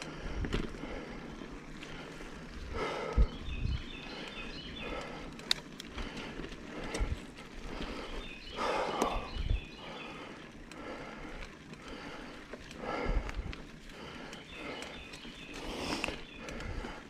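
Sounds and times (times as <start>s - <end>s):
bike tyres rumbling on dirt: 0.0s - 17.0s
faint birdsong: 0.0s - 17.0s
bike thumping over bumps: 0.2s - 1.0s.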